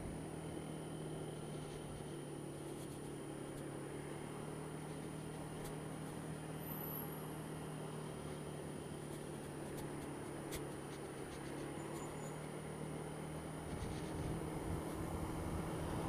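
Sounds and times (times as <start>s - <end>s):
road and wind noise: 0.0s - 16.0s
scooter engine running: 0.0s - 16.0s.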